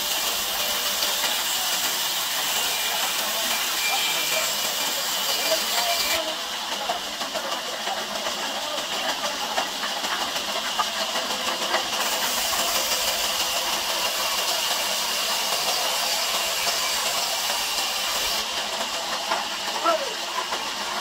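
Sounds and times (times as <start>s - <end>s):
band saw cutting log: 12.0s - 18.5s.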